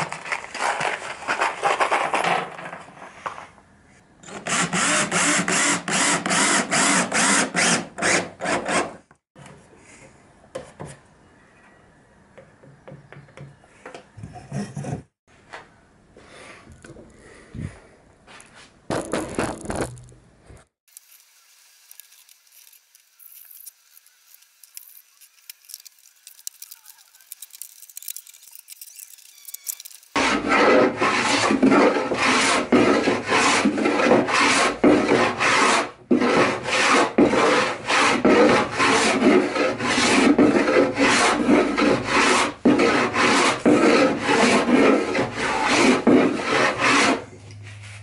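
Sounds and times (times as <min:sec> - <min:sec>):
faint workshop sounds: 0:00.3 - 0:18.9, 0:19.9 - 0:48.0
sanding block rubbing wood: 0:30.1 - 0:47.2.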